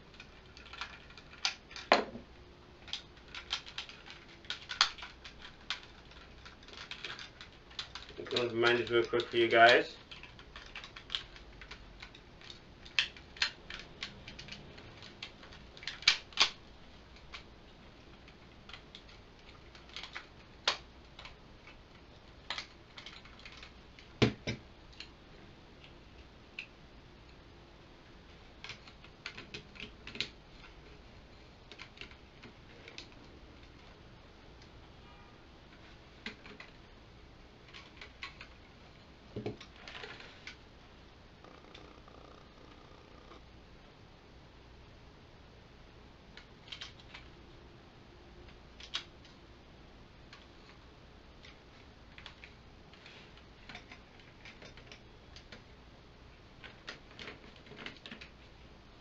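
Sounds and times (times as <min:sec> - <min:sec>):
plastic toy parts clicking: 0:00.1 - 0:02.0, 0:02.8 - 0:17.5, 0:18.1 - 0:25.1, 0:28.6 - 0:30.8, 0:31.7 - 0:34.0, 0:35.7 - 0:36.9, 0:37.6 - 0:38.6, 0:46.4 - 0:47.3, 0:48.5 - 0:49.3, 0:51.4 - 0:55.7.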